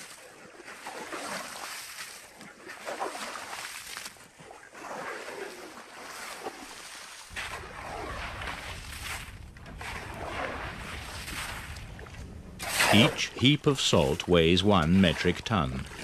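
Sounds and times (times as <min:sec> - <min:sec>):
low wind rumble: 0:07.3 - 0:16.0
shovel scraping wet salt crust: 0:12.6 - 0:13.4.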